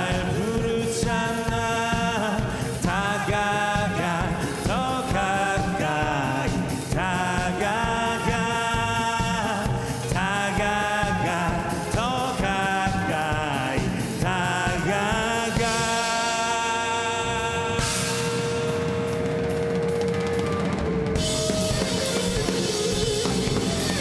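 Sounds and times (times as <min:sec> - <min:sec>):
person singing long notes: 0:00.0 - 0:19.2
drums: 0:00.0 - 0:24.0
electric guitar: 0:00.0 - 0:24.0
bass guitar: 0:17.2 - 0:24.0.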